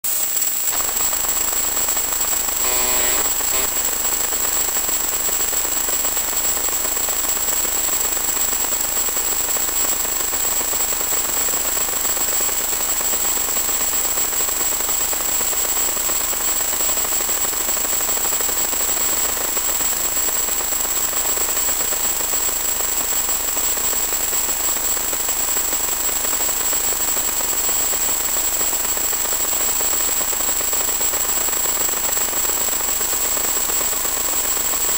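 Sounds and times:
crackling static hiss: 0.1 - 8.2
thin high-pitched whine: 0.1 - 10.0
brief pitched sound: 2.6 - 3.7.

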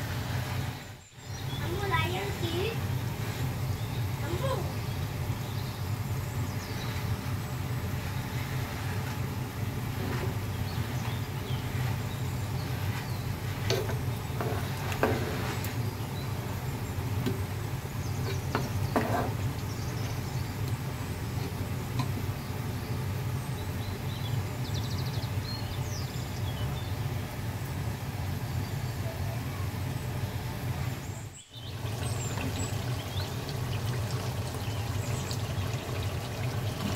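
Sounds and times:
spoon knocking and scraping pot: 13.5 - 15.7, 18.2 - 19.5.

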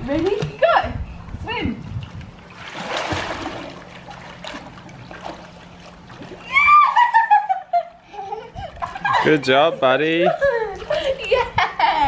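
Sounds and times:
pool water splashing: 1.8 - 12.0
child cheering high-pitched: 6.5 - 7.0.

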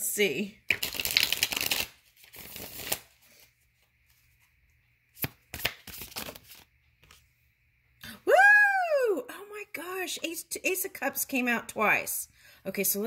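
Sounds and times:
cards shuffling: 0.7 - 4.5, 5.1 - 7.2.

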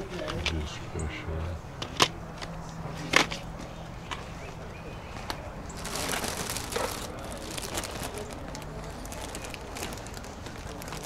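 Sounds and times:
plastic bag crinkling: 5.7 - 11.0.

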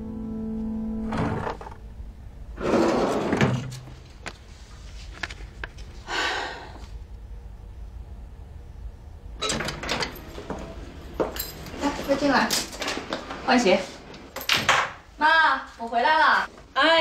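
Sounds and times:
front door opening clatter: 9.4 - 15.0.

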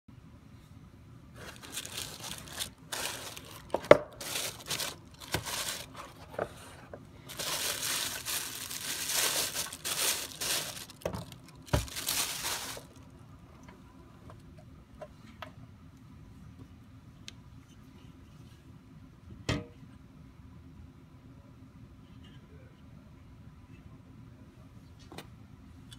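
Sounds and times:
plastic bag crinkling: 1.4 - 6.5, 7.2 - 13.1.

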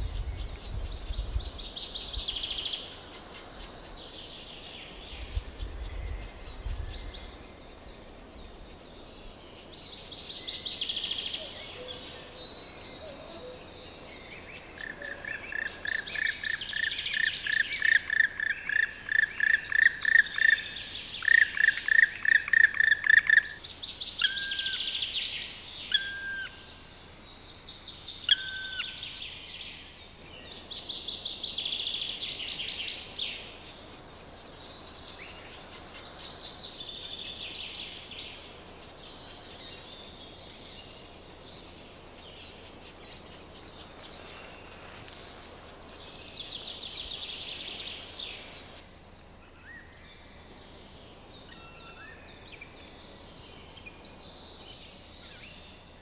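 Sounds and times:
woodpecker ringing calls: 14.8 - 20.6, 21.2 - 23.6.

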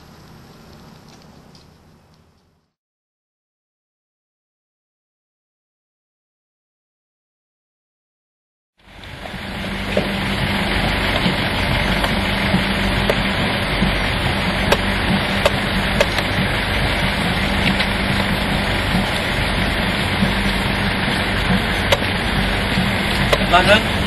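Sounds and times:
faint steady hum: 0.0 - 2.8, 8.8 - 24.0
low rumble: 0.0 - 2.8, 8.8 - 24.0.

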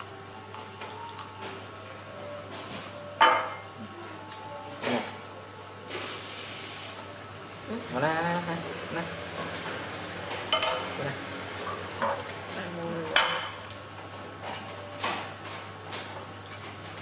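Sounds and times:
cutlery clinking on ceramic plates: 10.5 - 11.0.

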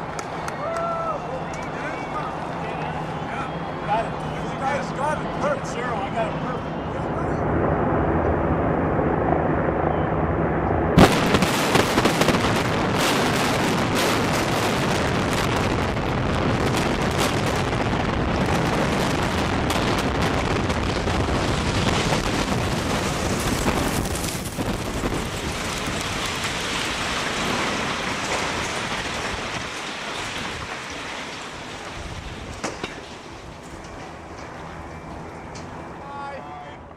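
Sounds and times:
low rumble: 5.0 - 30.8
loud explosive blast: 10.9 - 30.7
crackling rush of debris: 10.9 - 36.4.

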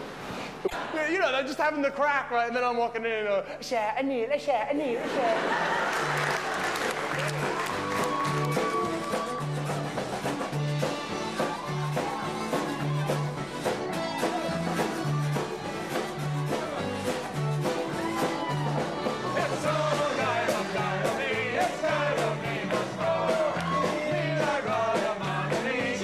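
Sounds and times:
live band playing: 5.7 - 26.0
sung vocals: 19.1 - 26.0.

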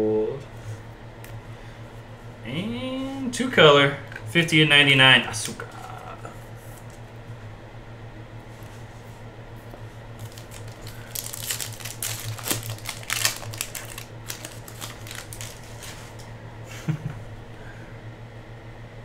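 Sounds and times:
steady low hum: 0.0 - 19.0
foil wrapper crinkling: 10.2 - 16.3.

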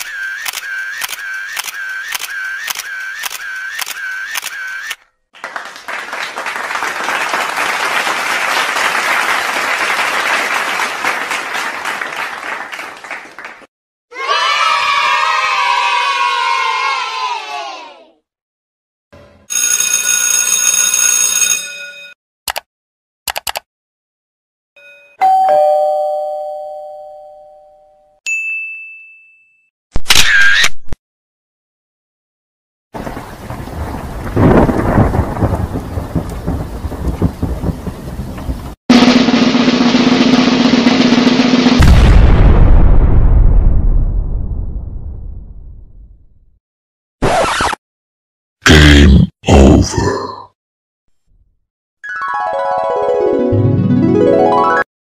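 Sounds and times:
camera shutter clicking: 0.0 - 5.0
crowd applauding: 5.3 - 13.7
two-note doorbell chime: 24.8 - 29.7.

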